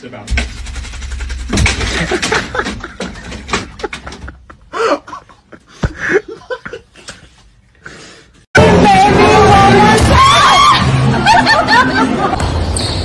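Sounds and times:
clicks and knocks: 0.3s - 4.6s
stifled laughter: 1.9s - 7.4s
loud music: 8.6s - 12.6s.

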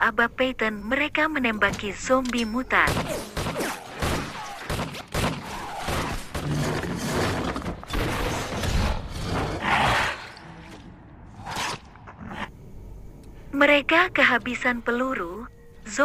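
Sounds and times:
rapid pistol gunfire: 2.9s - 6.6s.

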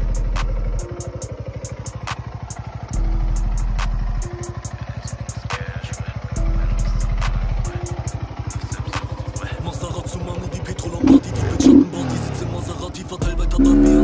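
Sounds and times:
motorcycle engine idling: 0.0s - 14.0s
deep low hum: 10.9s - 11.9s, 13.2s - 14.0s.

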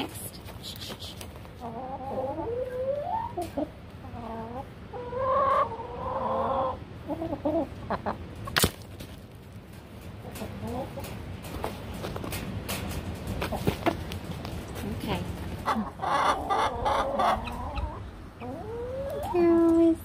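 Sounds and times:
hen clucking: 0.6s - 8.6s, 10.1s - 12.1s, 15.4s - 19.8s.

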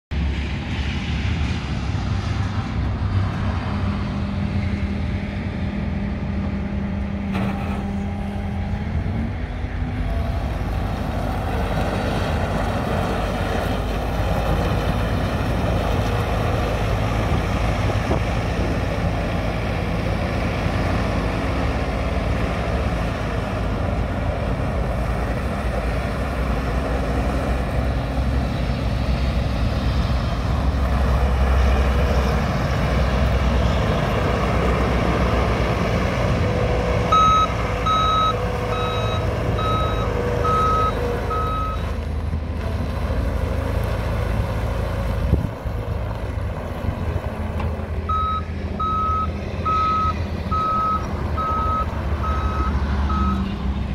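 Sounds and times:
diesel engine running: 0.1s - 53.9s
reverse alarm beeping: 37.1s - 41.8s, 48.1s - 53.4s.

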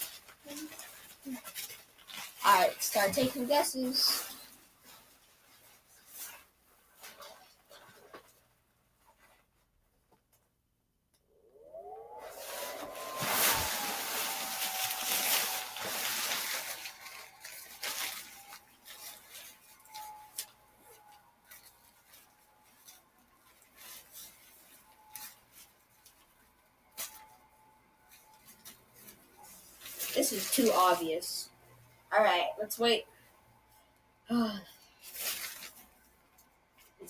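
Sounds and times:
blower fan whine: 11.3s - 34.1s
air rushing and nylon rustling: 12.2s - 19.6s.

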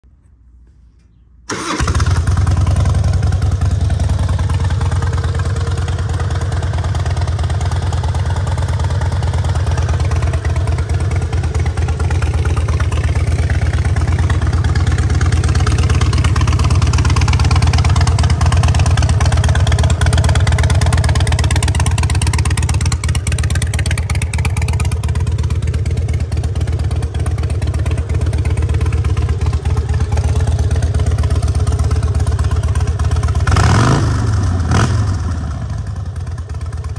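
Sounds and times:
motorcycle engine starting and idling: 1.4s - 36.9s.

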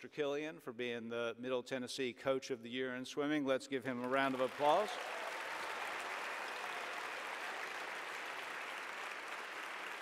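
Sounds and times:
audience applauding: 4.1s - 10.0s.

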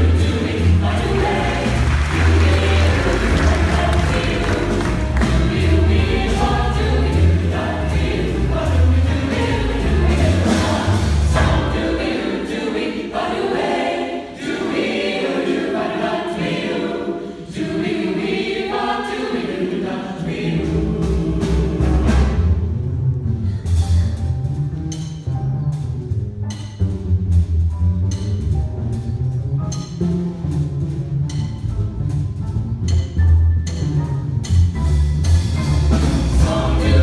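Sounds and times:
deep bass line: 0.0s - 11.8s, 20.7s - 37.0s
choir singing in harmony: 0.0s - 22.9s, 35.4s - 37.0s.

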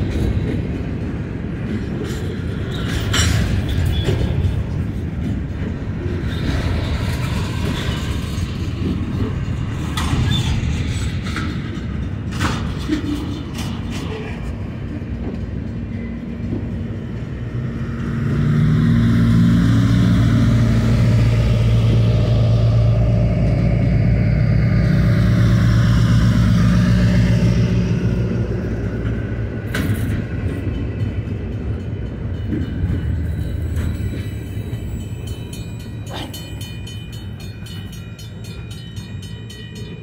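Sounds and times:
train wheels rumbling on rail: 0.0s - 40.0s
crossing bell ringing: 26.7s - 40.0s.

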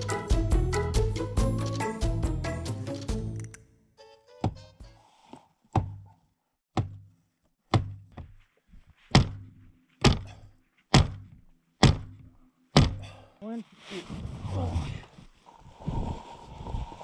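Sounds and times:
dull thunks: 9.1s - 13.1s.

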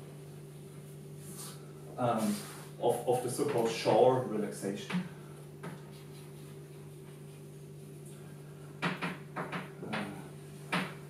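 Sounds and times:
low electrical hum: 0.0s - 11.0s
chalk scratching on blackboard: 5.8s - 8.0s.

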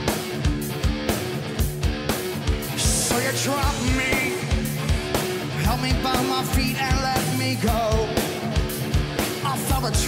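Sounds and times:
live rock band playing: 0.0s - 10.0s
man singing lead vocal: 2.7s - 8.7s, 9.4s - 10.0s.

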